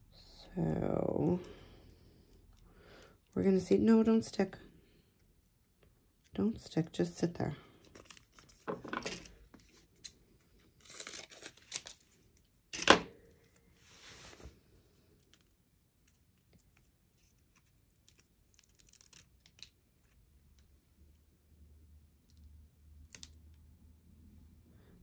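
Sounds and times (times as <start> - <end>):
film tearing rustles: 10.0 - 12.2, 17.2 - 20.1.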